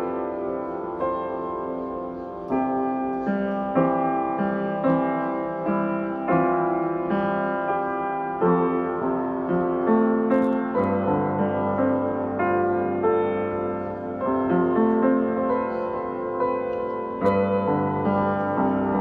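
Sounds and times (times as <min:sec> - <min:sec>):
slow piano music: 0:00.0 - 0:19.0.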